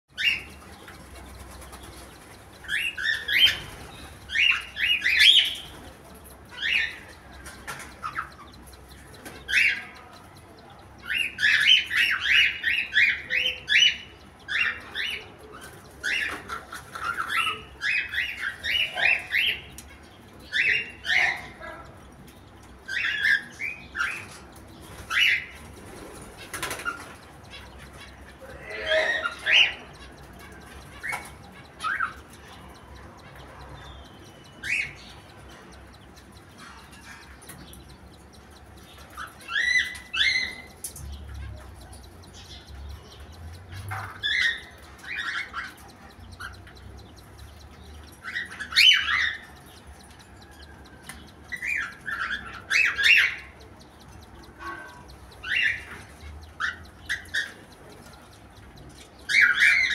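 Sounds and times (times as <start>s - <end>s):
cockatiels chirping: 0.1s - 59.9s.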